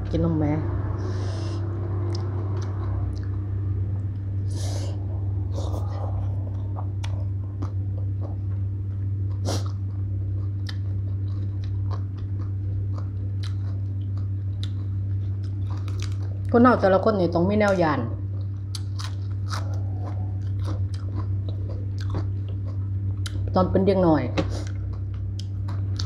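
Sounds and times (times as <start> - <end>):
steady low hum: 0.0 - 26.0
short noisy breaths: 1.0 - 1.7
wet chewing: 2.0 - 3.5, 4.9 - 16.5, 18.4 - 23.5, 24.6 - 26.0.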